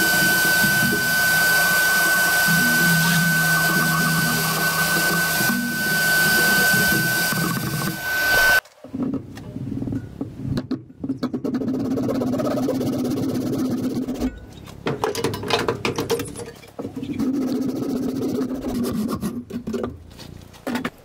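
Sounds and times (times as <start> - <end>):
handsaw cutting wood: 0.0 - 8.6
workshop vacuum whistling: 0.0 - 8.6.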